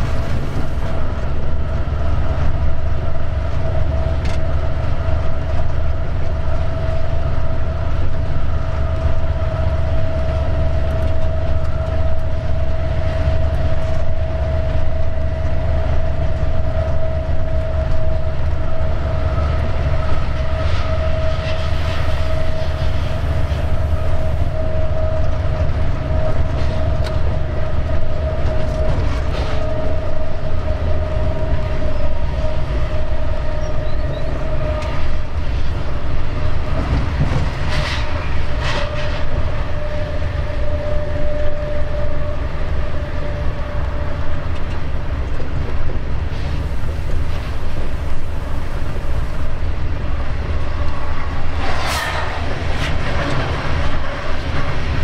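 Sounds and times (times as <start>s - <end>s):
rail clatter over points: 0.0s - 6.4s, 19.6s - 39.9s
constant whine: 0.0s - 55.0s
locomotive engine rumble: 0.0s - 55.0s.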